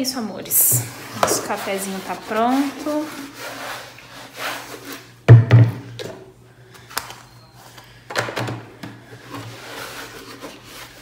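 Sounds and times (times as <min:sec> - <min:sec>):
cloth rubbing: 0:01.4 - 0:05.1.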